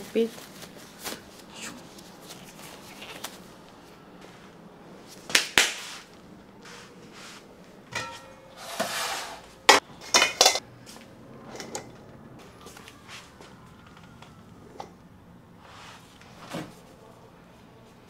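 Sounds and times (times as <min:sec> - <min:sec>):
metal bowl and sieve clattering: 0:07.9 - 0:10.6.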